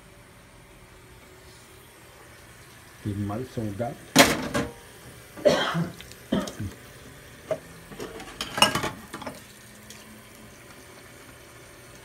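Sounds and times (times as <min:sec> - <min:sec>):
running tap water: 0:00.4 - 0:12.0
dishes clattering: 0:04.2 - 0:04.8, 0:07.5 - 0:09.4.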